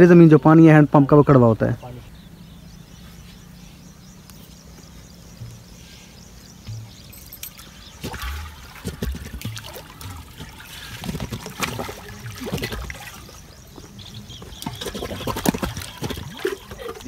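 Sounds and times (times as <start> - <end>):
water gurgling and splashing: 7.8 - 13.8, 14.5 - 17.0.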